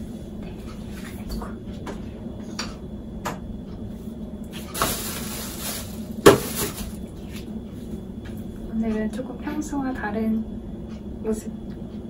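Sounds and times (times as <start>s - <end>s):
steady low hum: 0.0s - 12.0s
hair and clothing rustling: 4.6s - 7.5s.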